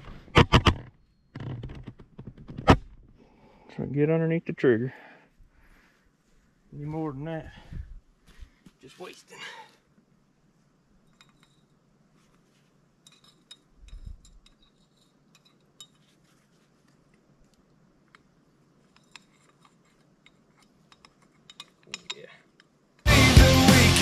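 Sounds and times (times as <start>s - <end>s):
metal trap clinking: 20.9s - 22.4s.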